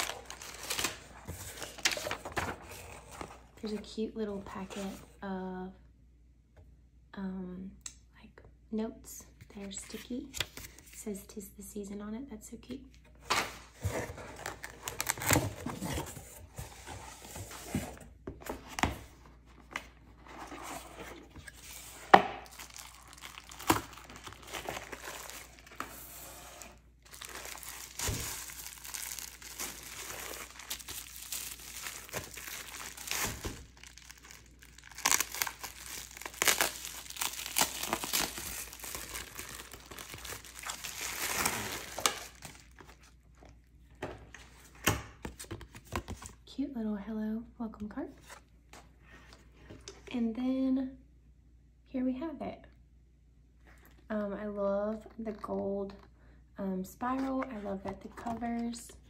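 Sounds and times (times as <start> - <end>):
bubble wrap crinkling: 0.0 - 2.7, 21.9 - 43.2.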